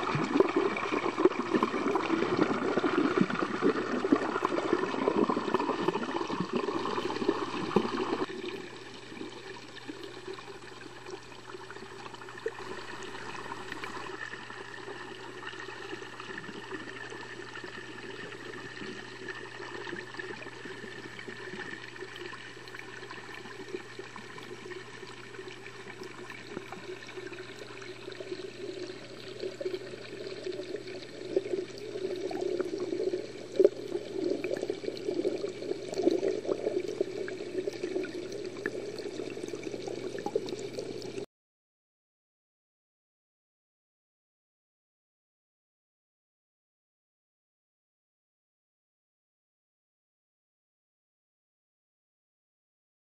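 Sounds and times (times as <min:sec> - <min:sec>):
muffled water sloshing underwater: 0:00.0 - 0:41.3.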